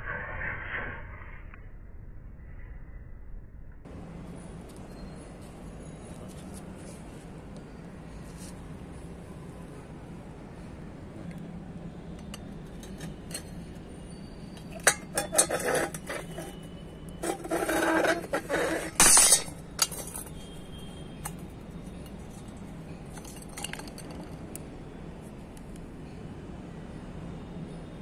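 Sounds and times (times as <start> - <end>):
metal tumbler clinking and clattering: 12.2 - 13.8, 14.6 - 20.6, 22.0 - 24.5.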